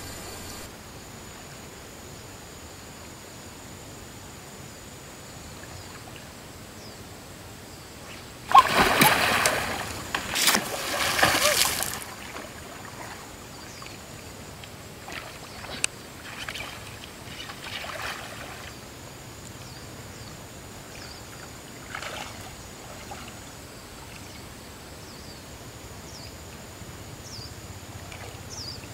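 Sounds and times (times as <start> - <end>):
water sloshing from wading: 8.5 - 13.9, 15.0 - 18.8.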